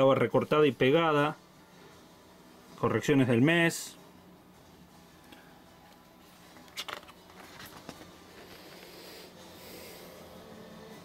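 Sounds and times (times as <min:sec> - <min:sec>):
paper page rustling: 0:06.6 - 0:08.9.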